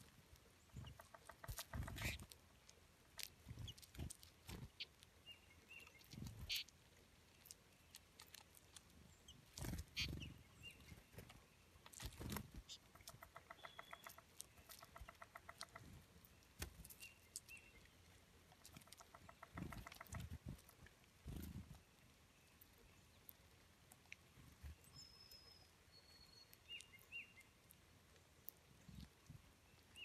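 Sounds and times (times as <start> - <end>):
birds pecking seeds: 0.0 - 30.0
bird chirps: 0.7 - 2.2, 3.5 - 6.7, 9.1 - 11.6, 12.2 - 16.0, 18.7 - 20.4, 24.7 - 27.6
rapid pulsed bird trill: 13.2 - 14.2.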